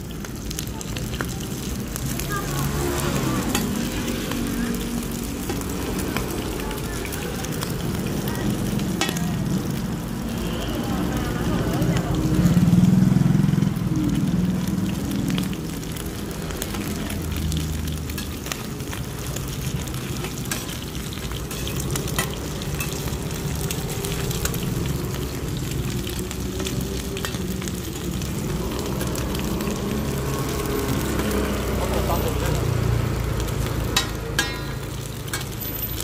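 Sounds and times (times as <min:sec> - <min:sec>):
omelette sizzling in oil: 0:00.0 - 0:36.0
metal spatulas scraping a pan: 0:21.4 - 0:23.0.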